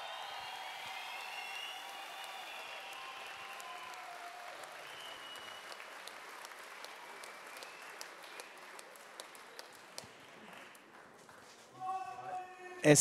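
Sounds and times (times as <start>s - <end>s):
audience applauding: 0.0s - 11.6s.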